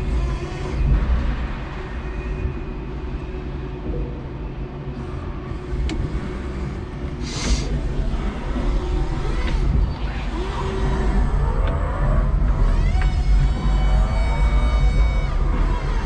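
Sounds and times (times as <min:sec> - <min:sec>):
forklift engine rumble: 0:05.0 - 0:16.0.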